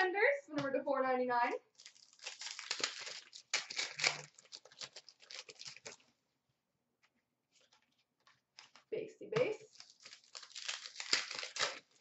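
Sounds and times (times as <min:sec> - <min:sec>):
trading cards and foil wrapper rustling: 0:01.8 - 0:06.1, 0:07.5 - 0:12.0.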